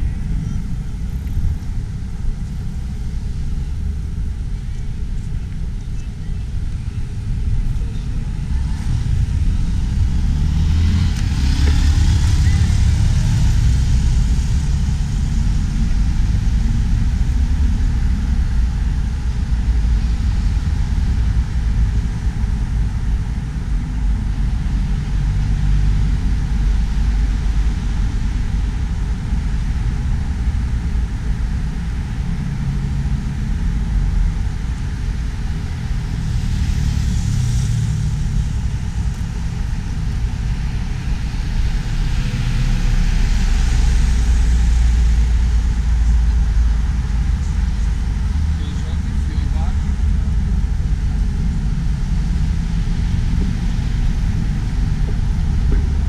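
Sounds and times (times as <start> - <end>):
road traffic rumble: 0.0 - 56.0
vehicle passing: 8.5 - 18.3.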